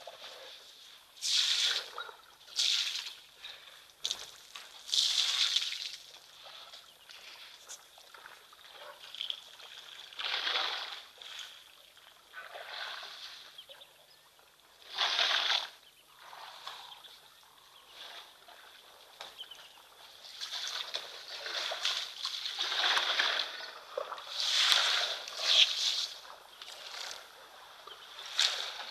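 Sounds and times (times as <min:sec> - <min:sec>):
water splashing and gushing: 0:01.2 - 0:11.6, 0:14.8 - 0:16.9, 0:20.3 - 0:28.9.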